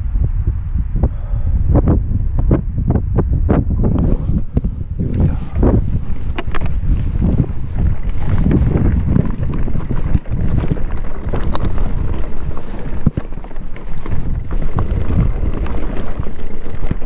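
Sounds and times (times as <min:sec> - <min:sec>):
wind buffeting microphone: 0:00.0 - 0:17.0
mountain bike rattling: 0:05.1 - 0:17.0.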